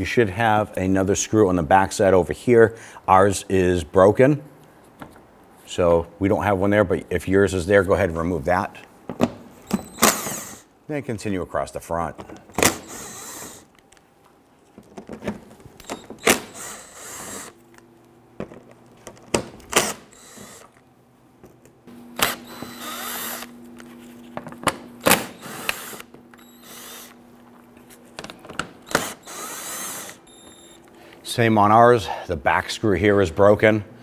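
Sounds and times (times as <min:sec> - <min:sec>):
cordless drill motor: 0:09.8 - 0:10.7, 0:12.5 - 0:13.8, 0:15.8 - 0:17.6, 0:19.7 - 0:20.8, 0:22.2 - 0:23.6, 0:25.0 - 0:27.2, 0:28.8 - 0:30.9
bit and screws clicking: 0:25.4 - 0:27.2.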